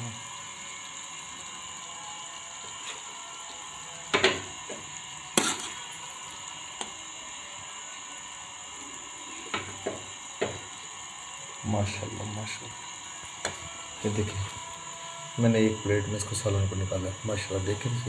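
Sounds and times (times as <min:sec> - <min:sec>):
steady hiss: 0:00.0 - 0:18.0
metal spoon scraping pan: 0:05.4 - 0:05.9.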